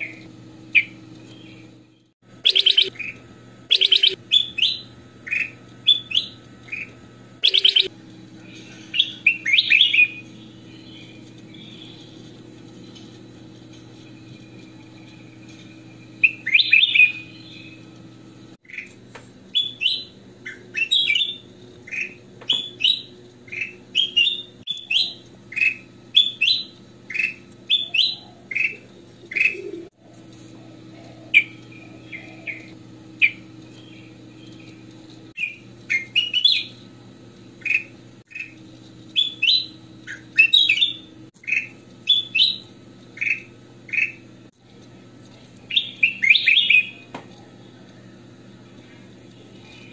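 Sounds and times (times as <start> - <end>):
low steady hum: 0.0 - 49.9
bird singing whistled phrases: 2.4 - 7.9, 8.9 - 12.1, 16.2 - 17.8, 19.6 - 29.9, 35.4 - 36.8, 39.2 - 44.2, 45.7 - 47.1.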